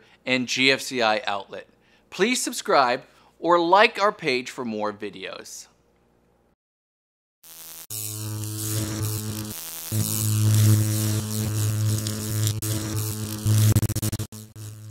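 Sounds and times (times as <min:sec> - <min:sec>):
electric buzzing hum: 0:07.4 - 0:14.9.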